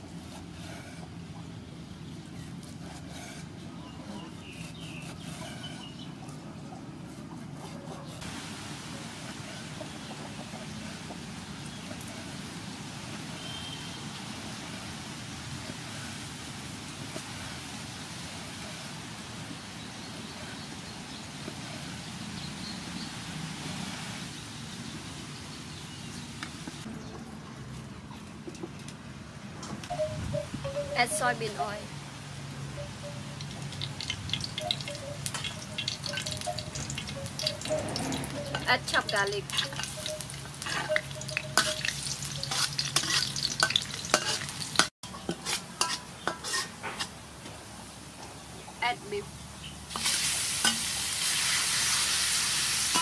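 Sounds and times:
outdoor background noise: 0.0s - 53.0s
garlic sizzling in oil: 33.4s - 47.2s, 49.9s - 53.0s
metal spatula scraping wok: 35.3s - 47.2s.

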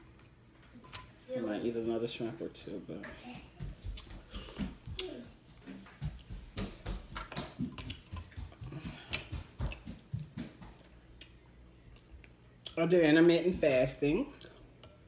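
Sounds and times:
chewing and lip-smacking: 3.8s - 5.2s, 7.2s - 12.8s.

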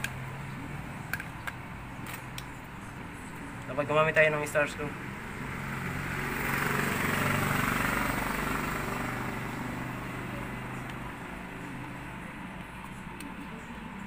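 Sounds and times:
vehicle engine passing: 4.5s - 12.5s.

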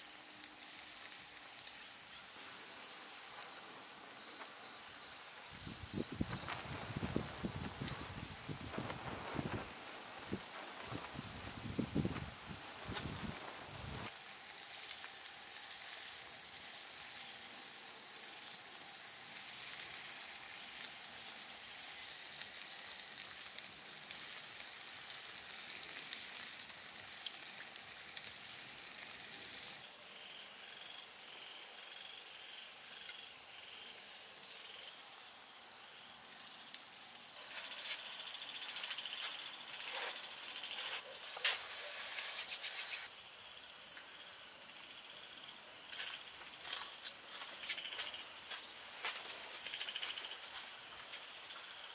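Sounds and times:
skewers sizzling on a grill: 0.0s - 29.9s, 32.9s - 43.1s, 44.6s - 51.9s
crickets trilling: 0.0s - 51.9s.

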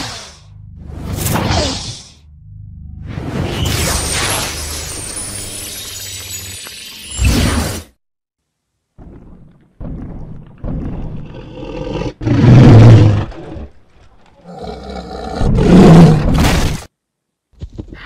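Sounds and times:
dinosaur growling and roaring: 10.7s - 16.4s.

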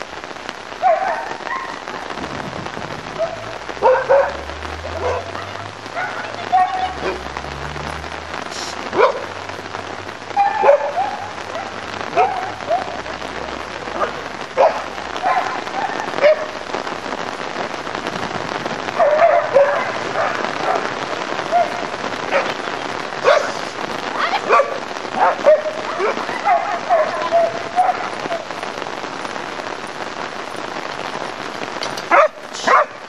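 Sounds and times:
dog barking: 0.7s - 2.1s, 3.0s - 7.3s, 8.9s - 9.4s, 10.4s - 13.0s, 13.9s - 16.6s, 18.9s - 23.7s, 24.4s - 28.5s, 31.9s - 33.0s
steady hiss: 8.3s - 8.9s.

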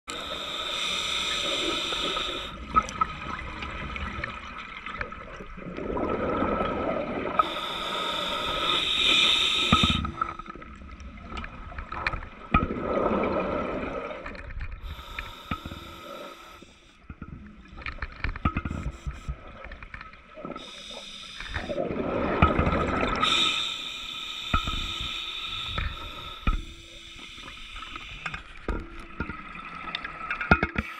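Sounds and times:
regulator hissing inhale: 0.1s - 2.6s, 7.4s - 10.6s, 14.8s - 17.0s, 20.6s - 21.8s, 23.0s - 28.6s
exhaled bubbles rushing: 2.6s - 7.4s, 9.7s - 14.3s, 21.6s - 23.3s
small clicks and knocks: 28.2s - 30.9s.

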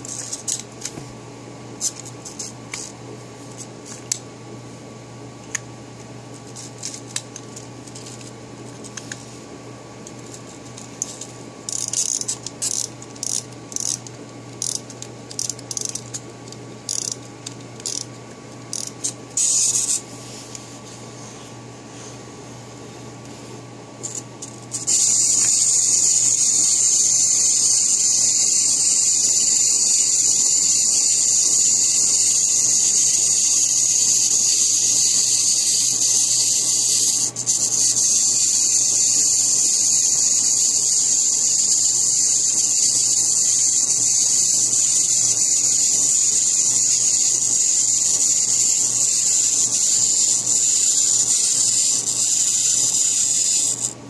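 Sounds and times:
pencil sharpener grinding: 11.0s - 17.2s, 17.8s - 18.1s, 18.7s - 20.0s, 24.1s - 54.0s.

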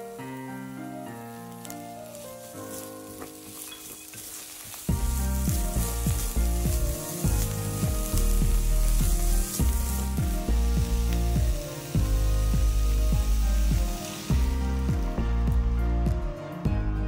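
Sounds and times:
vegetables sizzling in oil: 0.0s - 15.5s
spatula stirring and scraping: 2.2s - 11.2s.

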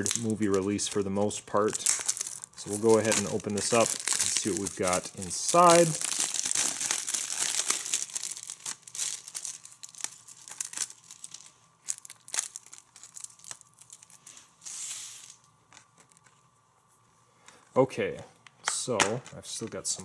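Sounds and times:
plastic wrap crinkling and tearing: 0.0s - 15.5s.

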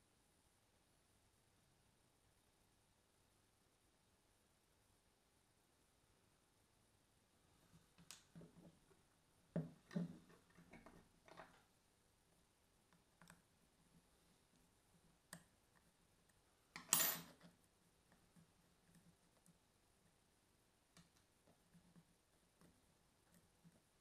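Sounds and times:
clatter on wooden table: 16.8s - 17.4s.

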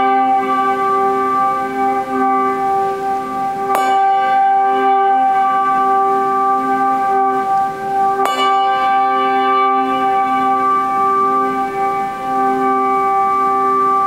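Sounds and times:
handbells ringing: 0.0s - 14.0s.

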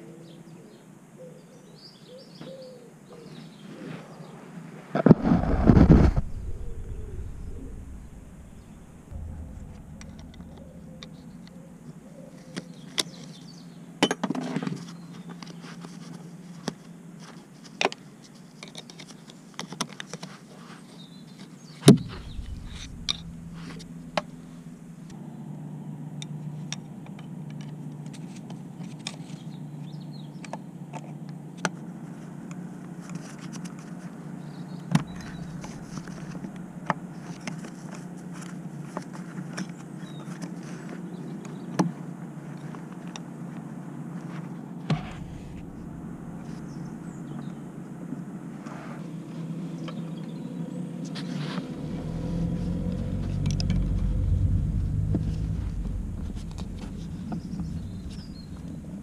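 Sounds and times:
steady low hum: 5.2s - 14.0s, 21.8s - 25.5s, 34.5s - 37.5s, 44.6s - 48.5s, 52.0s - 59.0s.

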